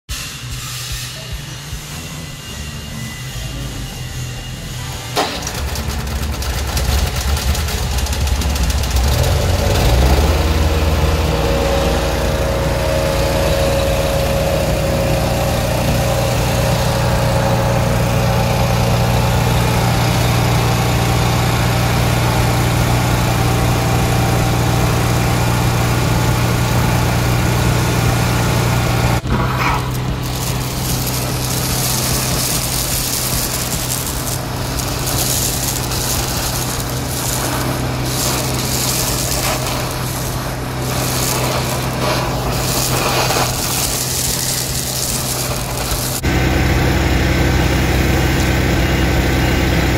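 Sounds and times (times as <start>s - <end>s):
petrol engine running: 1.2s - 49.9s
hiss of air and water suction: 29.2s - 46.3s.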